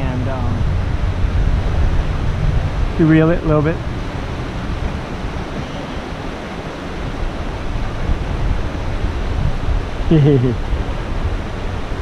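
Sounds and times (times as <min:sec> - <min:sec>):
rushing outdoor noise with rumble: 0:00.0 - 0:12.0.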